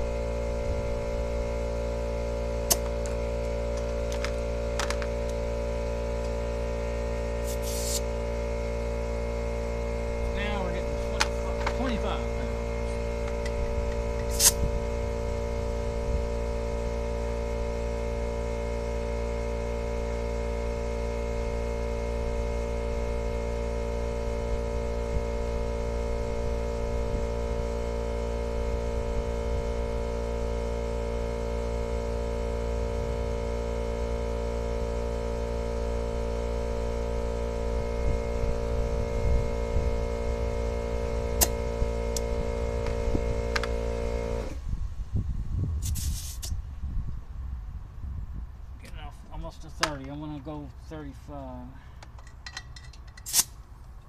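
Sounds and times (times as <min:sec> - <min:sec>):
air compressor humming: 0:00.0 - 0:47.1
air chuck clicking: 0:02.6 - 0:05.4, 0:41.4 - 0:43.8.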